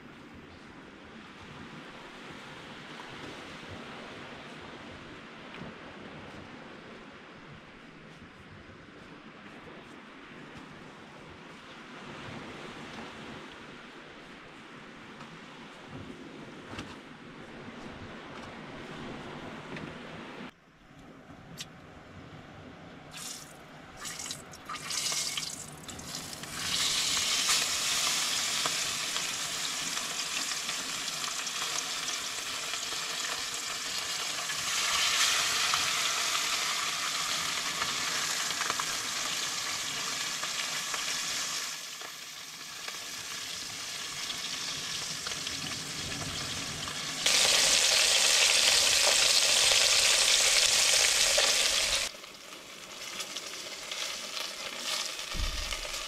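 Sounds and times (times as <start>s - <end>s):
fish sizzling in hot oil: 24.0s - 45.4s, 46.4s - 56.0s.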